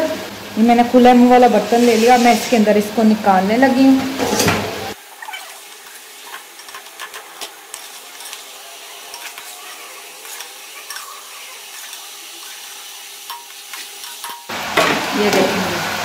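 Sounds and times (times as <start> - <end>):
hot oil sizzling in a pan: 0.2 - 3.2, 4.9 - 16.0
strainer and spoon scraping pan: 4.1 - 14.5.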